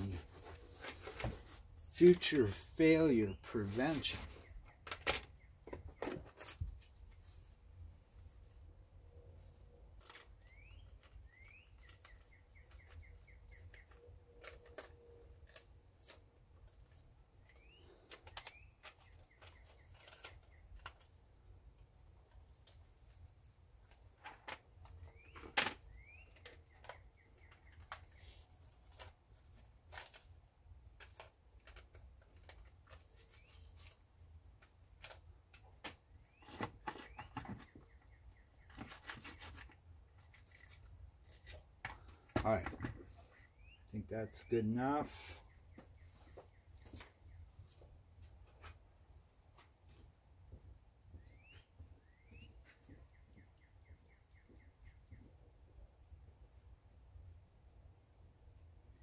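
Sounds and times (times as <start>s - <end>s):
faint bird chirps and trills: 0.0s - 48.7s, 51.0s - 56.7s, 58.2s - 59.0s.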